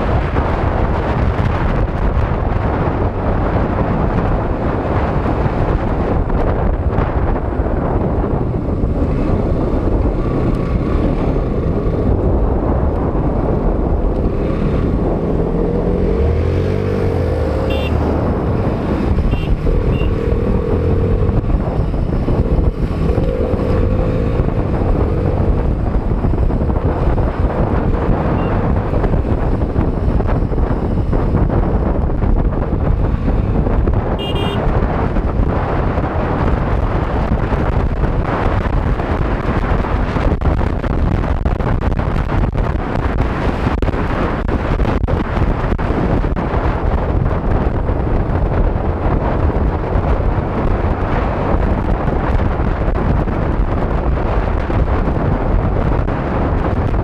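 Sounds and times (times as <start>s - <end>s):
motorcycle engine running: 0.0s - 57.0s
wind rumble on microphone: 0.0s - 57.0s.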